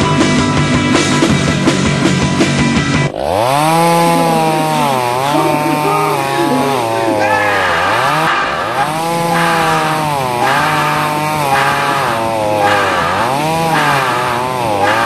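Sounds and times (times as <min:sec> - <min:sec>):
rock music with drums and keyboards: 0:00.0 - 0:03.1
chainsaw revving: 0:02.5 - 0:15.0.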